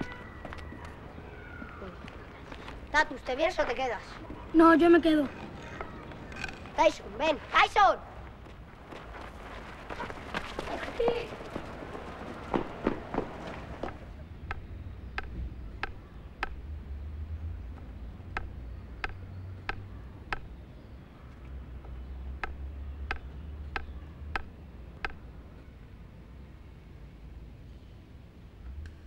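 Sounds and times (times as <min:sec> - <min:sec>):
wooden stick tapping on ground: 0:15.2 - 0:16.6.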